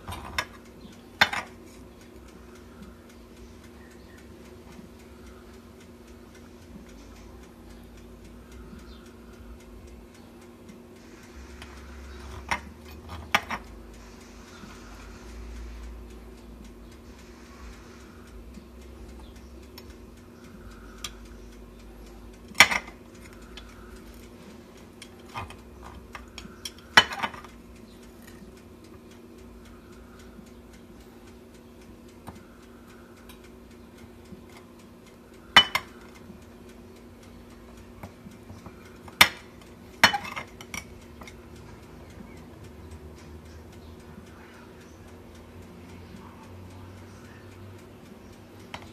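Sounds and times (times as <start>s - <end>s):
low steady hum: 0.0s - 48.9s
knife clinking on ceramic plate: 35.6s - 35.9s.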